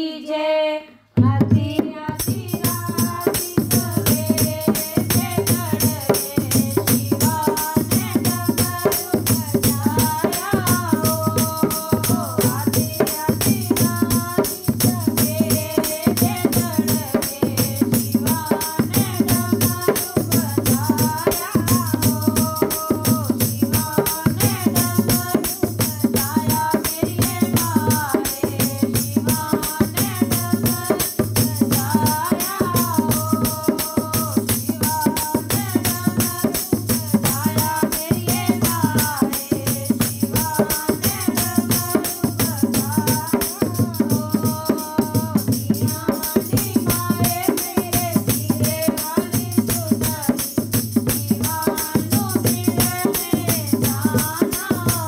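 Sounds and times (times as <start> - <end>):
devotional music with fast percussion: 2.2 - 55.0.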